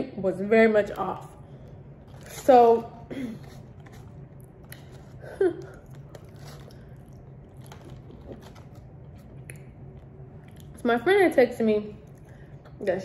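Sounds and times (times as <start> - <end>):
chewing chicken wings: 3.4 - 10.8.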